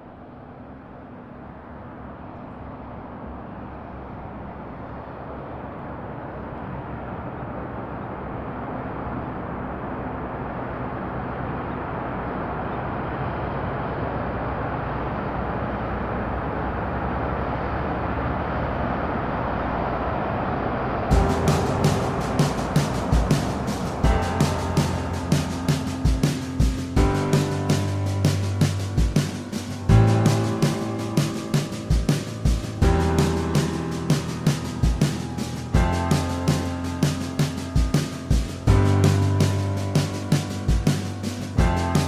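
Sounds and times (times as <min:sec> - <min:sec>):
steady rushing rumble: 0:00.0 - 0:42.0
percussive music hits: 0:21.1 - 0:42.0.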